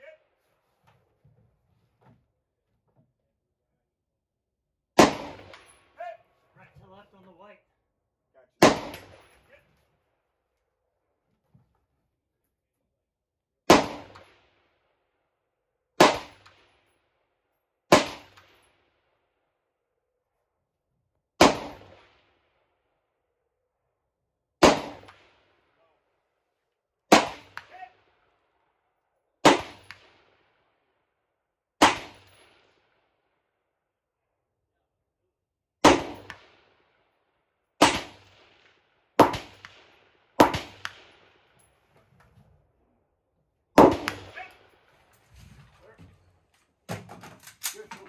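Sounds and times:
rifle shots echoing: 0:05.0 - 0:06.0, 0:08.6 - 0:09.4, 0:13.7 - 0:14.6, 0:16.0 - 0:16.9, 0:17.9 - 0:18.9, 0:21.4 - 0:22.3, 0:24.6 - 0:25.6, 0:27.1 - 0:28.1, 0:29.4 - 0:30.5, 0:31.8 - 0:33.0, 0:35.8 - 0:36.9, 0:37.8 - 0:41.6, 0:43.8 - 0:45.0.

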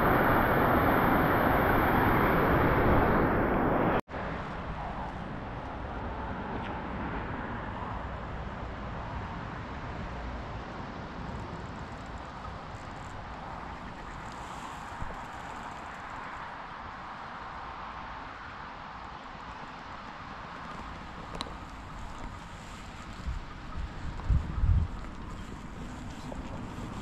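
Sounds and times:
quieter steady rushing: 0:00.0 - 0:06.2.

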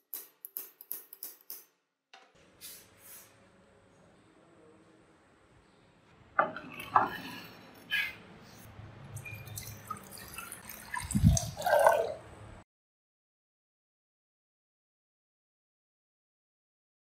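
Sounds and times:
water pouring into glass dish: 0:09.2 - 0:12.3.

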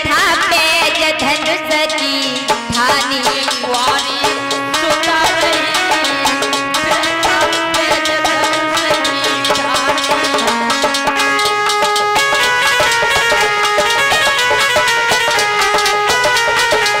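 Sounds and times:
folk melody of held notes: 0:00.0 - 0:17.0
quick steady percussion beat: 0:00.0 - 0:17.0.

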